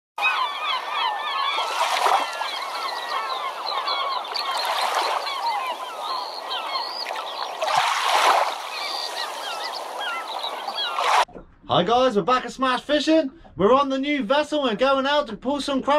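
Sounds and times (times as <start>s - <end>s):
flock of birds chirping and honking: 0.2s - 7.6s, 8.5s - 11.1s
waves washing in: 1.4s - 11.3s.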